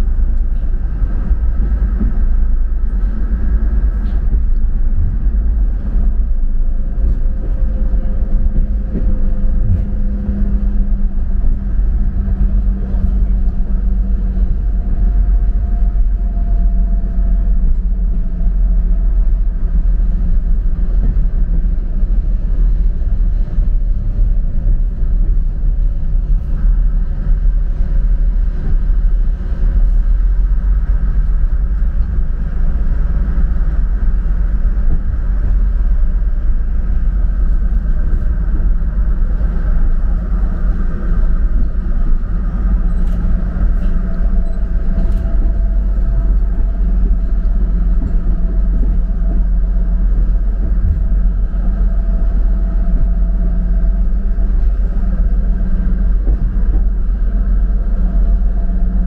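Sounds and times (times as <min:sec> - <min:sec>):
diesel engine running: 0:00.0 - 0:59.0
train rolling on track: 0:00.0 - 0:59.0.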